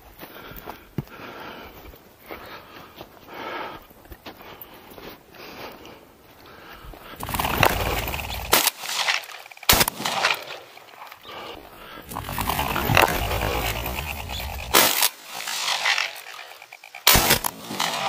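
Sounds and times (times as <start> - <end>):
heavy breathing: 0.0 - 8.6, 10.6 - 14.8
loud rustling: 7.2 - 10.6, 12.0 - 18.0
shotgun reports: 7.2 - 10.7, 12.1 - 18.0.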